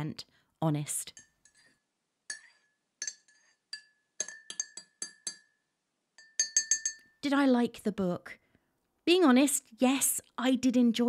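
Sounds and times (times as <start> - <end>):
spoon clinking against cup: 2.3 - 5.6, 6.2 - 7.2.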